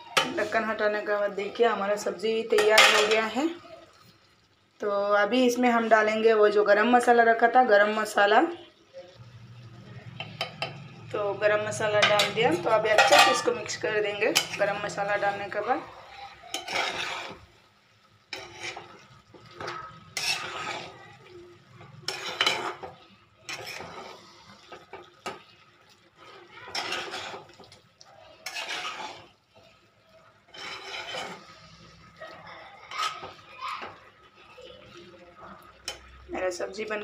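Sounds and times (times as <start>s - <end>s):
metal spoon scraping a frying pan: 0.1s - 3.6s, 10.1s - 34.0s, 35.7s - 36.3s.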